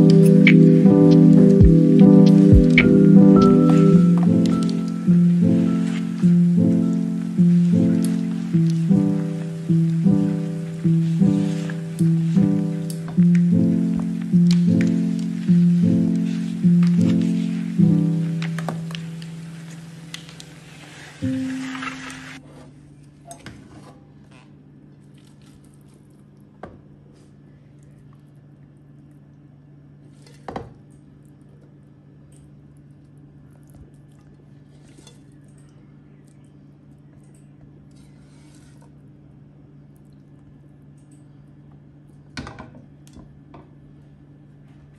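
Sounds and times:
background music: 0:00.0 - 0:22.4
low hum: 0:00.0 - 0:22.4.

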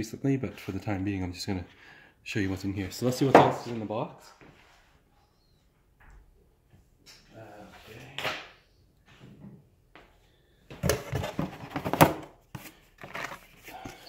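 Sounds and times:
cardboard insert rustling and scraping: 0:10.8 - 0:14.0.

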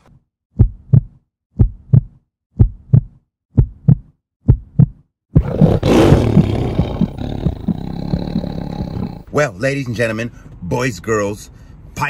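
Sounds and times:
heartbeat thumps: 0:00.5 - 0:09.3.

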